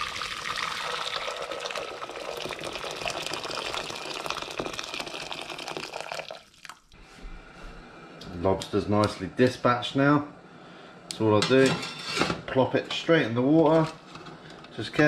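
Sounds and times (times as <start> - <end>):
water pouring into metal pot: 0.0 - 6.9.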